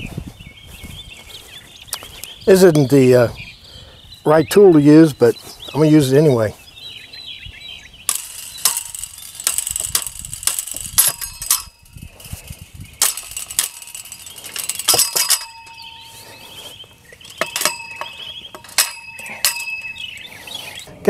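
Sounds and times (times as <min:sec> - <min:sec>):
metal clanks on fence hardware: 0:08.1 - 0:21.0.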